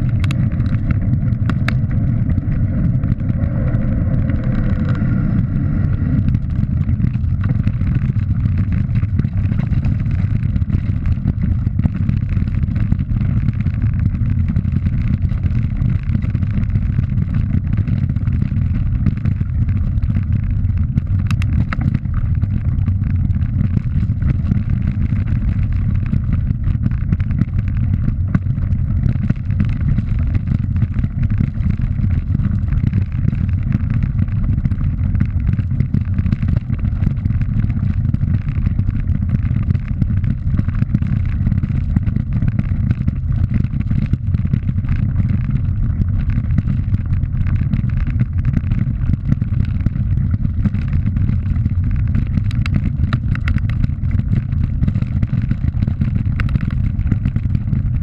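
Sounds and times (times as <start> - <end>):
wind buffeting microphone: 0.0 - 12.1.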